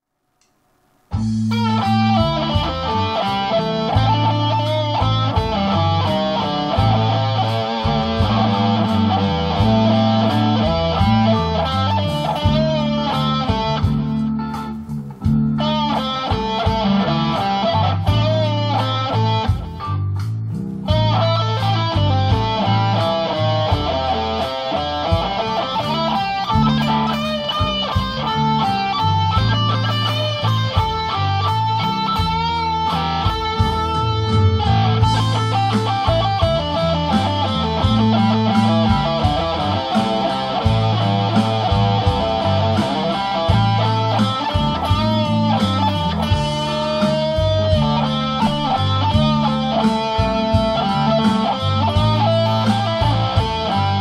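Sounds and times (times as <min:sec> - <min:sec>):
electric blues guitar licks: 0:01.1 - 0:54.0.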